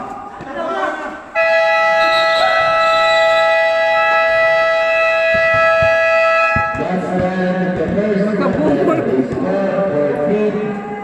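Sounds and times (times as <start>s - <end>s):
electronic buzzer sounding a chord: 1.4s - 6.8s.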